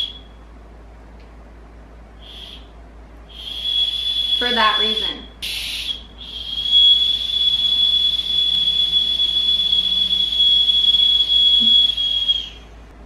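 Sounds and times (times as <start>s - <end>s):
whistle lollipop blown: 0.0s - 0.4s, 2.2s - 2.7s, 3.3s - 12.7s.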